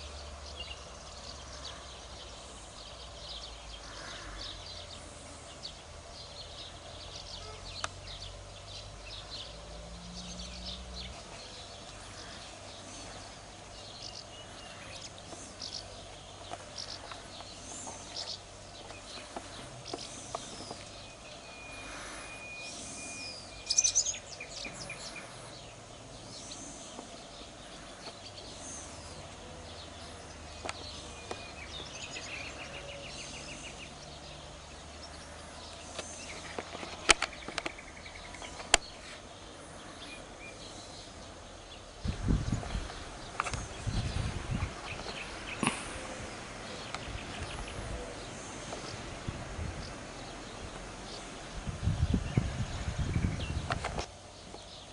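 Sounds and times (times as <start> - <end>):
birds singing and chirping: 0.0 - 54.9
bird trill: 10.2 - 34.4
bird whistle: 21.4 - 24.7.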